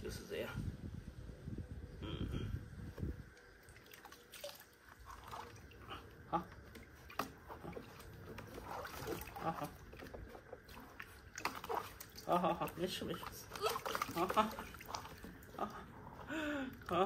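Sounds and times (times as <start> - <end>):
water sloshing in plastic tub: 2.9 - 17.0
short splashes: 3.6 - 15.8.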